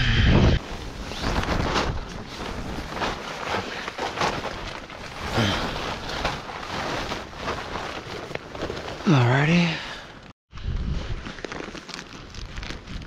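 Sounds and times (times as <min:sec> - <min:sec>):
nylon fabric rustling: 0:00.6 - 0:10.4.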